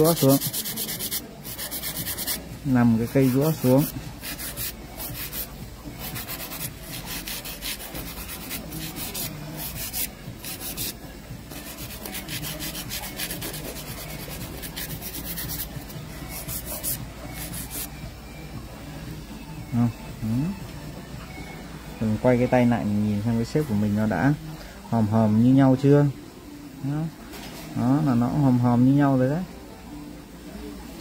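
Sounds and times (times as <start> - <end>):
nail file rasping: 0.0 - 2.4, 3.2 - 15.7.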